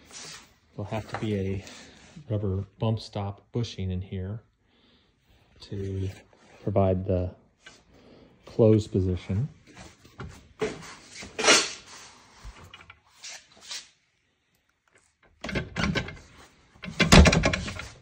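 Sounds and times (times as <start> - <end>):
metal carrier arm clunking and rattling: 15.3 - 18.0.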